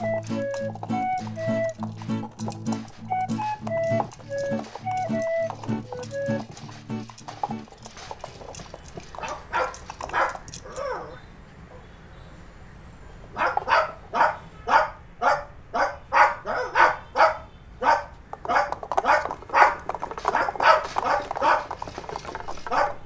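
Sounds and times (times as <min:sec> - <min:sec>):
dog barking: 0:09.2 - 0:11.1, 0:13.4 - 0:21.7, 0:22.7 - 0:23.0.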